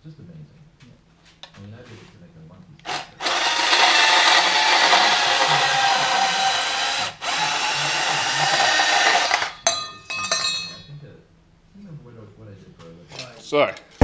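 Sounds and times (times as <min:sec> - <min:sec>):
band saw cutting metal pipe: 0:02.9 - 0:09.6.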